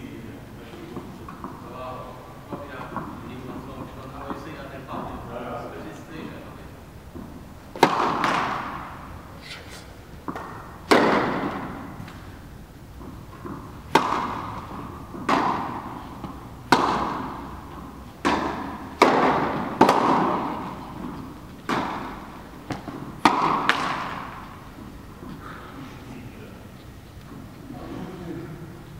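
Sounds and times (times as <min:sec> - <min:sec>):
rackets hitting tennis ball: 0:00.7 - 0:01.8, 0:07.1 - 0:27.7.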